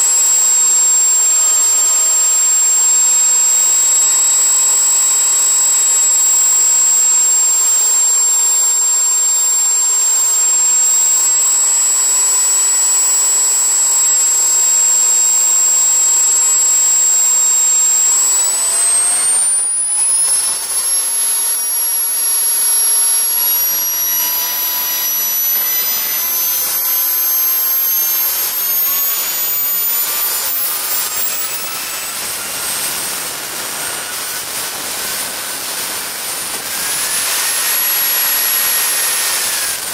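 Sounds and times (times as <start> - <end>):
model jet turbine whining: 0.0 - 39.9.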